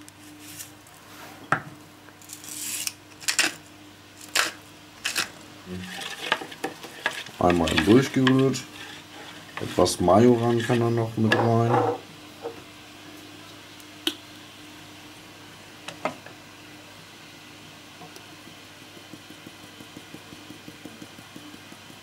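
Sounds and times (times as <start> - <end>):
steady low hum: 0.0 - 22.0
spice shaker tapping: 18.1 - 22.0.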